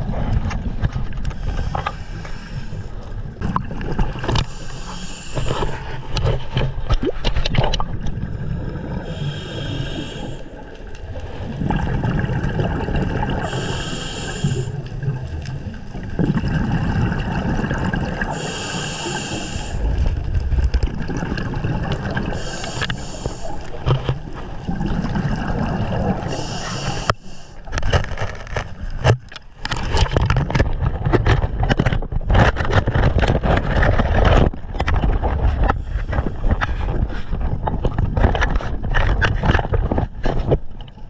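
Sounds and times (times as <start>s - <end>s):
underwater churning bubbles: 0.0s - 41.0s
breath hissing through regulator: 4.4s - 5.7s, 9.0s - 10.5s, 13.4s - 14.8s, 18.3s - 20.0s, 22.2s - 23.7s, 26.2s - 27.6s.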